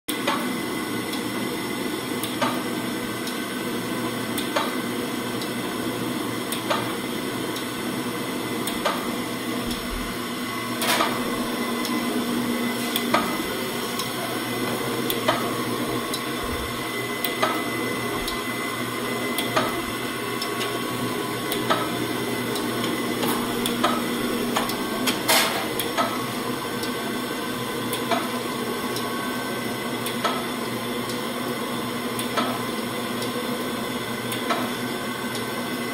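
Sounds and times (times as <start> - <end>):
grinder motor humming: 9.3 - 26.6.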